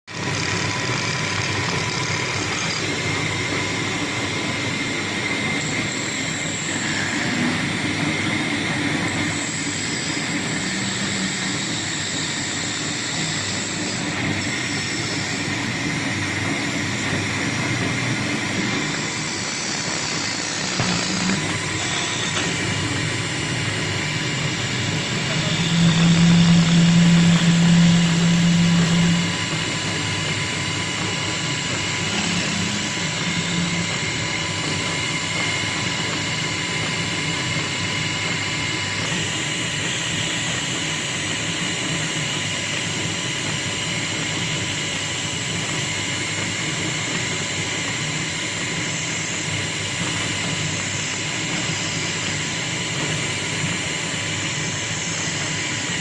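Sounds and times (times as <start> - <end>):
lathe whirring: 0.1 - 56.0
chisel scraping spinning wood: 19.6 - 29.6, 31.7 - 34.3
low hum: 20.4 - 35.0.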